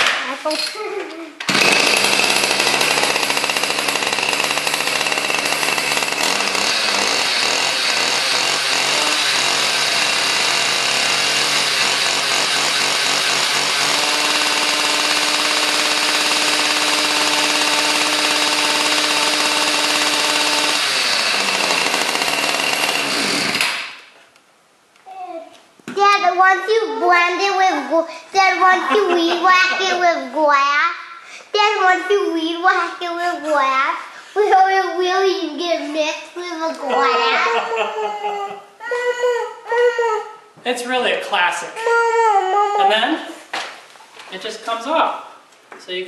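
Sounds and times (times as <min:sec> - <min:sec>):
small gas engine running: 0:01.5 - 0:23.8.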